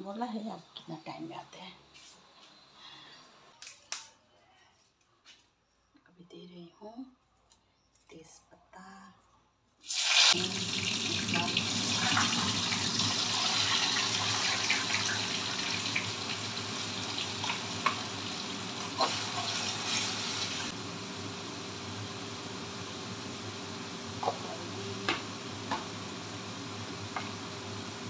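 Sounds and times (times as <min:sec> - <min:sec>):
hot oil sizzling: 0:09.8 - 0:28.0.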